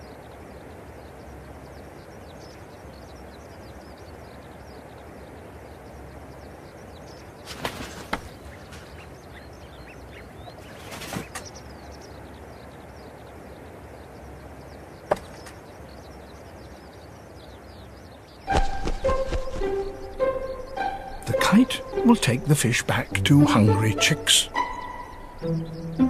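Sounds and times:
birds chirping: 0:00.0 - 0:26.0
music: 0:18.5 - 0:26.0.

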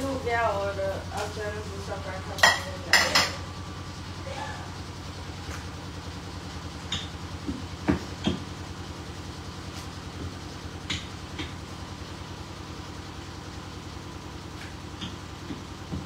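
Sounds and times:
woman speaking: 0:00.0 - 0:03.4
household machine humming and rumbling: 0:00.0 - 0:16.0.

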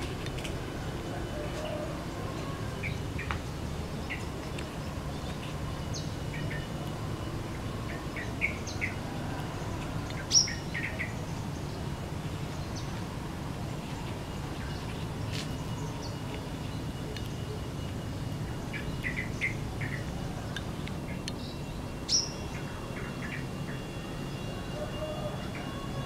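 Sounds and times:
bird chirping: 0:09.6 - 0:13.0.

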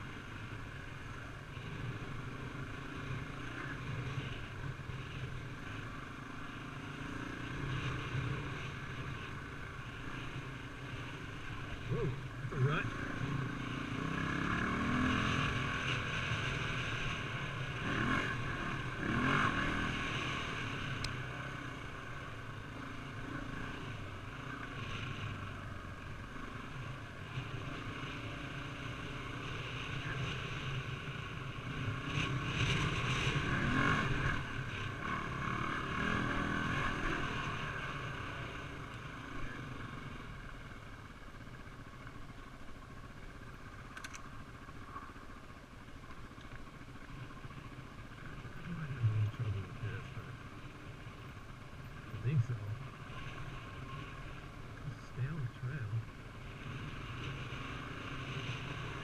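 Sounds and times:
dirt bike engine revving: 0:10.9 - 0:25.3, 0:26.3 - 0:40.3.

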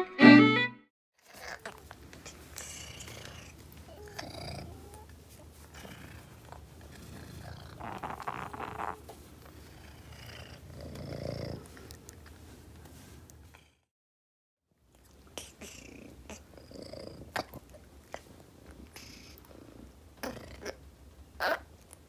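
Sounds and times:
cat purring: 0:01.3 - 0:12.1, 0:15.1 - 0:20.8.

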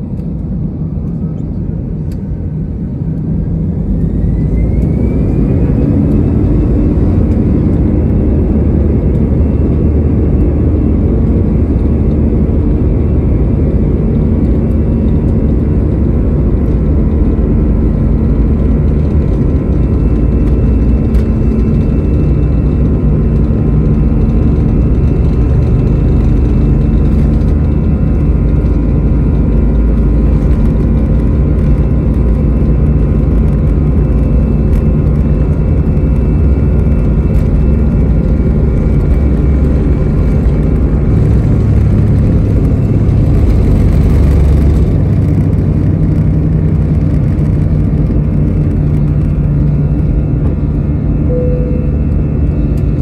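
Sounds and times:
jet engines rumbling: 0:00.0 - 0:53.0
jet engines spooling up: 0:00.0 - 0:53.0.

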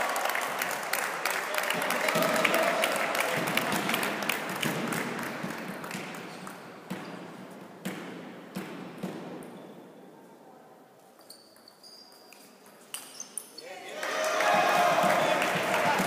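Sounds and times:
spectators applauding: 0:00.0 - 0:06.6, 0:13.9 - 0:16.0.

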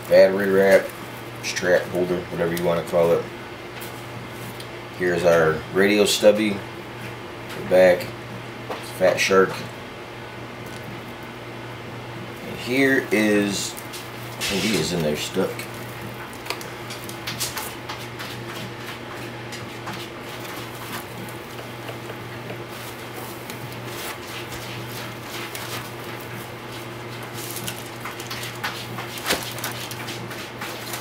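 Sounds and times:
steady low hum: 0:00.0 - 0:31.0
foam rustling: 0:22.6 - 0:31.0.

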